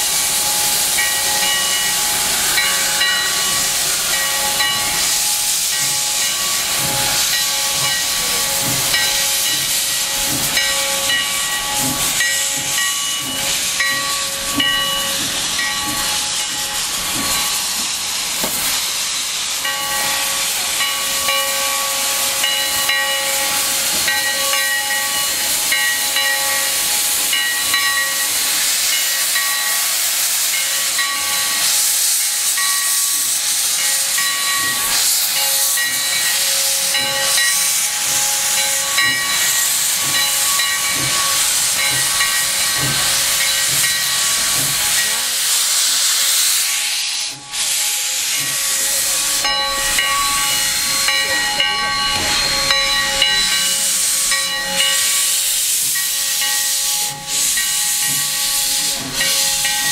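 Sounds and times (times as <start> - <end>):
steam hissing from locomotive: 0.0 - 59.9
steady tones: 48.3 - 58.2.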